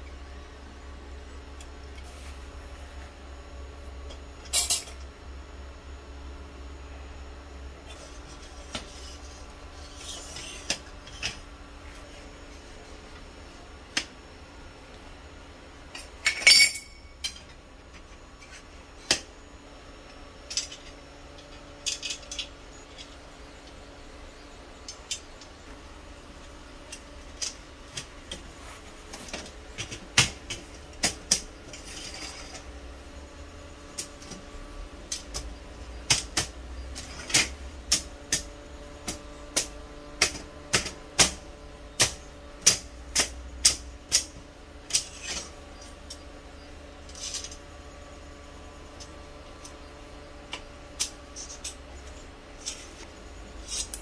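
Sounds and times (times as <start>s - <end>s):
metal frame pieces clinking: 15.9s - 17.5s, 53.6s - 54.0s.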